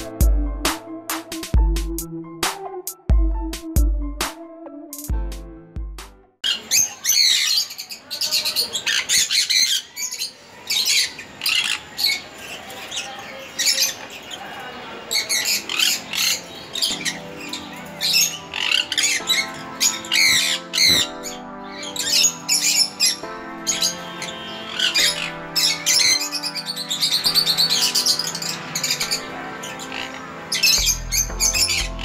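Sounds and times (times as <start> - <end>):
background music: 0.0 - 6.4, 15.3 - 32.0
cockatiels squawking: 15.1 - 32.0.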